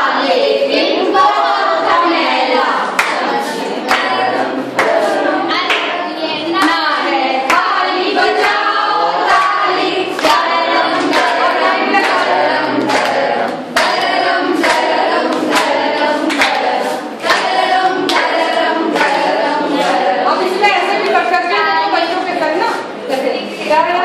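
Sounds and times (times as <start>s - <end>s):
women singing in chorus: 0.0s - 24.0s
hands clapping on the beat: 3.0s - 6.0s, 6.6s - 20.1s.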